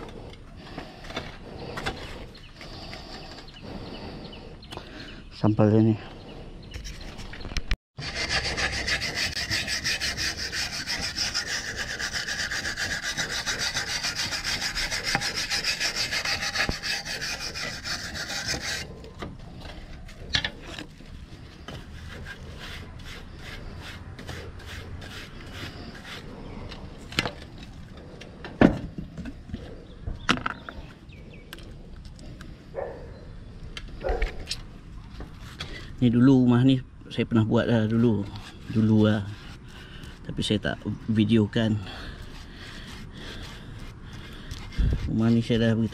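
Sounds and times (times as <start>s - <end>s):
wire brush scrubbing concrete tiles: 8.0s - 27.4s, 37.7s - 40.8s, 41.9s - 45.9s.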